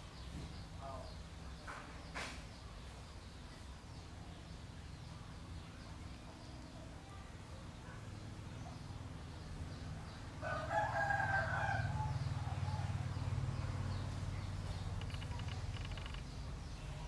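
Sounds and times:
drawn-out animal call: 11.0 - 17.0.

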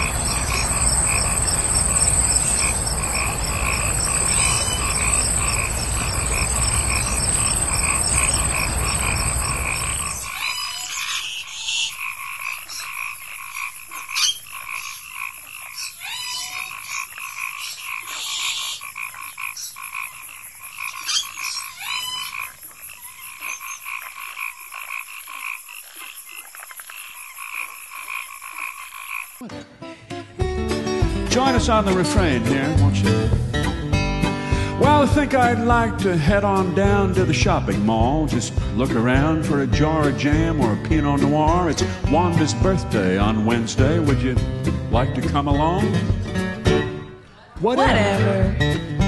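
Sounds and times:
low rumble: 0.0 - 10.2
frogs croaking: 0.0 - 29.4.

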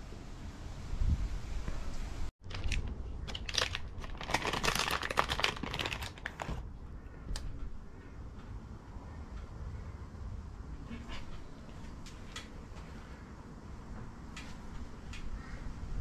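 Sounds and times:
plastic packet crinkling: 2.4 - 6.6.

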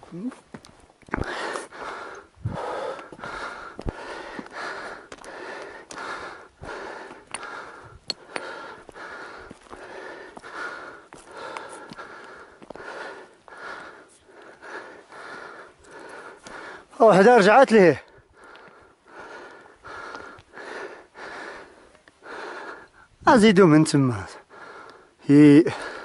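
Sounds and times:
heavy rhythmic breathing: 1.1 - 23.2, 24.3 - 26.0.

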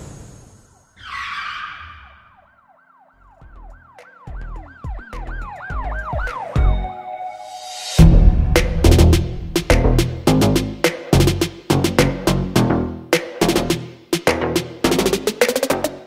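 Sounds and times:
siren-like rising and falling tone: 0.7 - 9.2
whoosh: 7.5 - 10.3
impact hit: 8.0 - 10.2
low thumps: 8.0 - 10.8.

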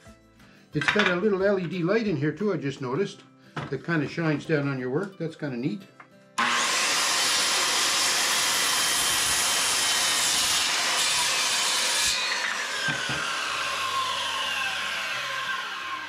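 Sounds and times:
circular saw cutting wood: 6.4 - 16.0.

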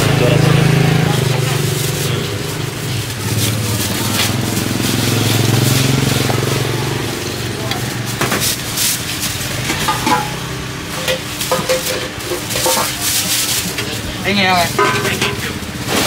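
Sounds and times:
busy market hubbub: 0.0 - 16.0
metal spoon tapping glass bowls: 9.8 - 13.0.

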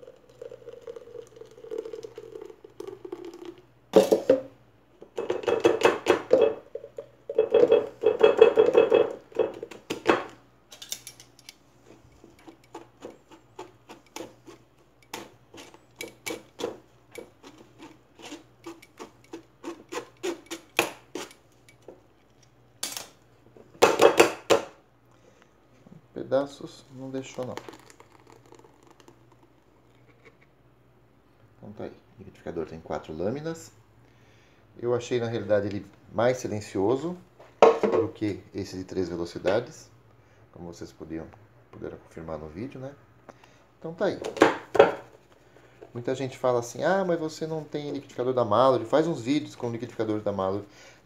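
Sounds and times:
juice pouring and splashing: 0.0 - 4.2, 27.0 - 30.2
utensil scraping mesh strainer: 12.4 - 21.4.

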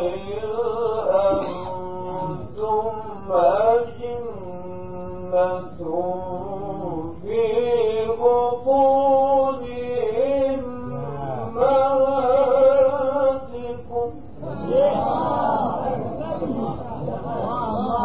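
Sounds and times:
man reciting melodically: 0.0 - 18.0.

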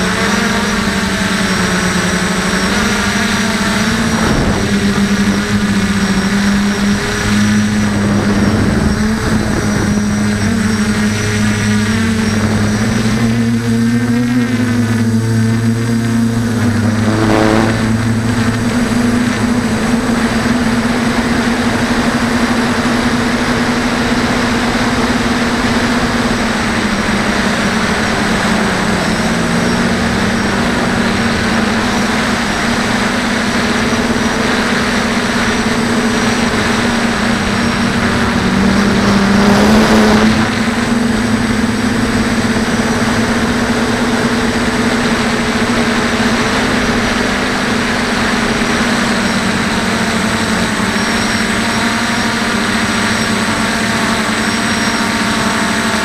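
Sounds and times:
quadcopter motors buzzing: 0.0 - 56.0
air noise: 1.6 - 52.2.

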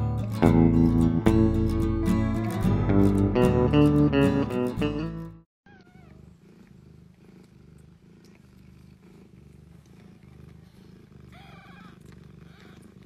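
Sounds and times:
cat purring: 5.8 - 13.0
kitten squeaking: 11.3 - 12.8.

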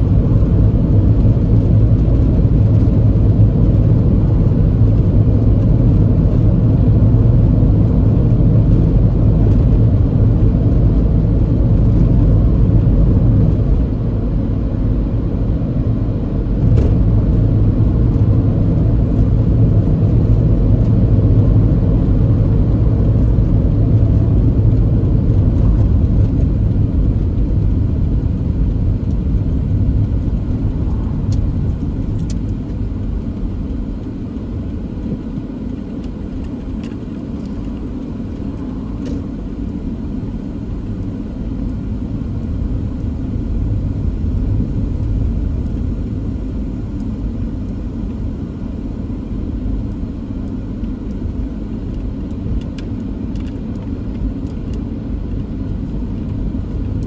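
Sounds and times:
car interior driving rumble: 0.0 - 57.0.

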